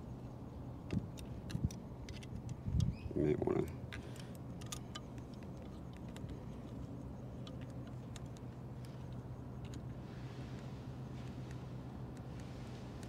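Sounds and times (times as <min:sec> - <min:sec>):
steady low hum: 0:00.0 - 0:13.0
allen key clicking on screws: 0:03.6 - 0:09.9.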